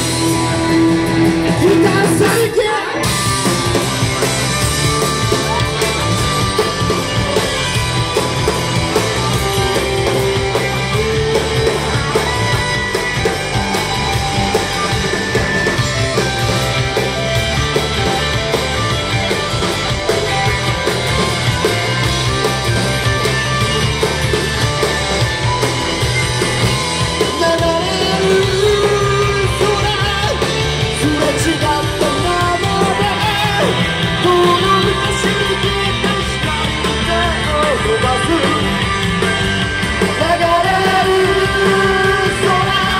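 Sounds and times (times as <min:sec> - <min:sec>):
drums: 0:00.0 - 0:42.9
electric guitars: 0:00.0 - 0:42.9
person singing: 0:01.4 - 0:03.3, 0:27.2 - 0:38.9, 0:40.1 - 0:42.9.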